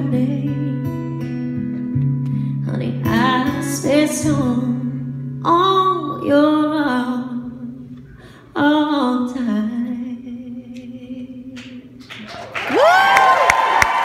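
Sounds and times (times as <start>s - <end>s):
woman singing into microphone: 0.0s - 1.1s, 2.5s - 12.0s
applause: 12.0s - 14.0s
audience cheering: 12.2s - 14.0s.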